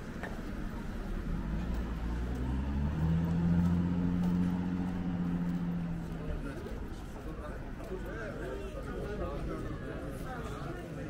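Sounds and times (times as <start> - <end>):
vehicle engine running: 0.3 - 8.3.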